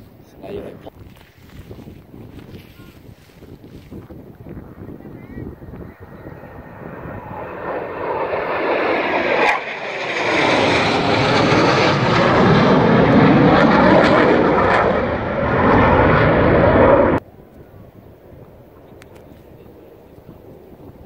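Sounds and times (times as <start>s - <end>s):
jet engine roar: 4.2s - 21.0s.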